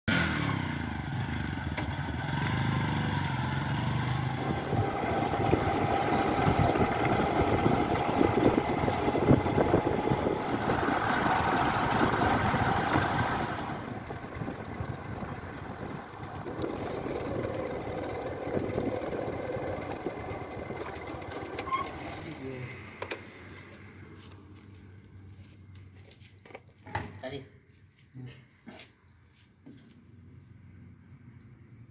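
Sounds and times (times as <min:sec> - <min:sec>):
motorcycle engine: 0:00.1 - 0:24.4.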